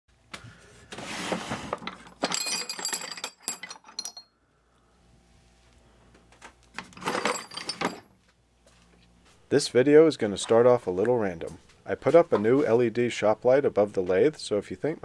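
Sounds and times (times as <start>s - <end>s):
scraping shuffle: 0.5s - 2.0s
metal rods clinking: 1.8s - 4.3s, 7.0s - 8.1s.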